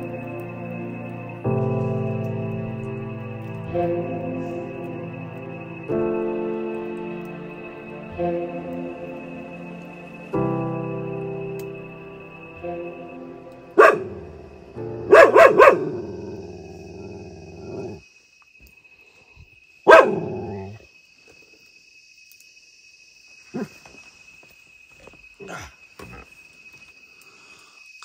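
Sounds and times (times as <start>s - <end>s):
dog barking: 13.8s - 14.3s, 15.0s - 16.1s, 19.8s - 20.8s.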